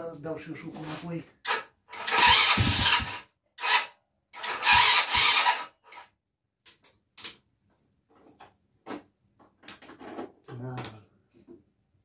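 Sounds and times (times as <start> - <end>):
electric starter cranking engine: 1.5 - 6.0.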